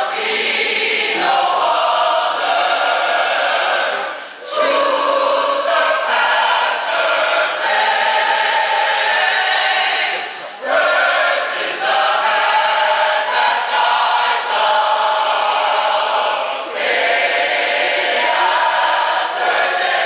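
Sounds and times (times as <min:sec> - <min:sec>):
choir singing: 0:00.0 - 0:20.0.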